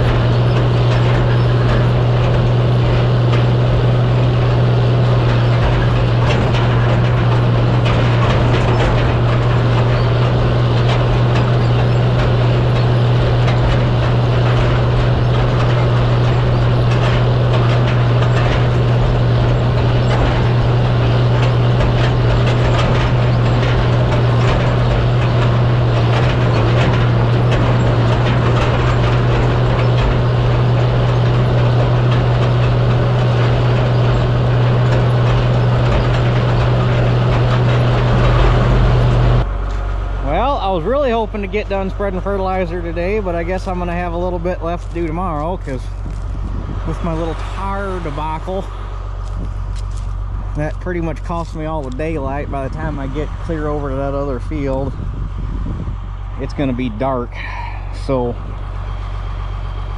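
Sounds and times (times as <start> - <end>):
tractor engine droning: 0.0 - 59.9.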